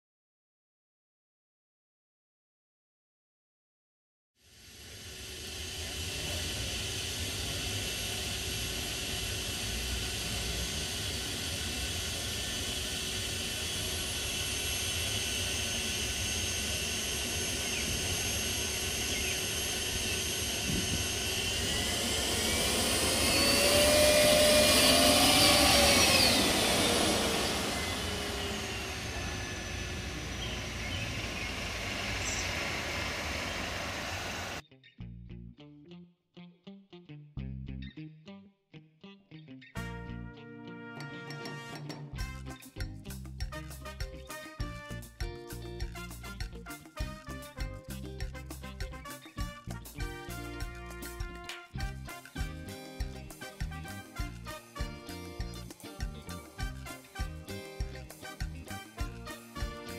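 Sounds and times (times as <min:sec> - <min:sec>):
gas turbine car whining: 0:04.5 - 0:34.6.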